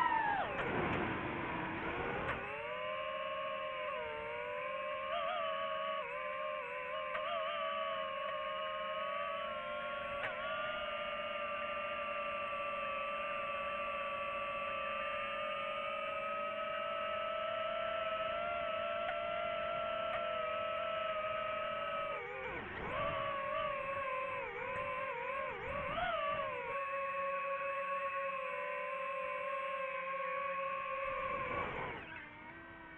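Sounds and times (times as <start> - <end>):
drone propellers whining: 0.0 - 32.9.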